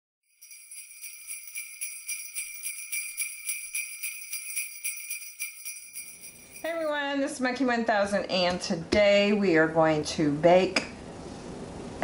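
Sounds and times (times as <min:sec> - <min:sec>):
jingle bells shaking: 0:00.2 - 0:07.1.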